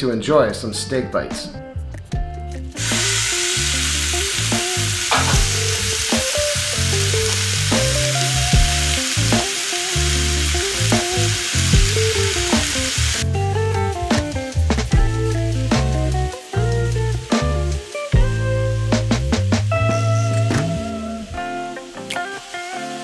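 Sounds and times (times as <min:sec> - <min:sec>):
background music: 0:00.0 - 0:23.0
meat sizzling in a skillet: 0:02.8 - 0:13.4, 0:14.1 - 0:19.2, 0:20.8 - 0:23.0.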